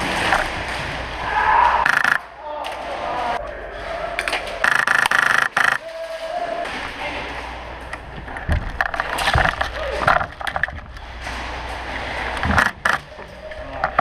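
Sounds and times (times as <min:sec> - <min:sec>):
airsoft rifle full-auto burst: 0:04.6 - 0:05.8.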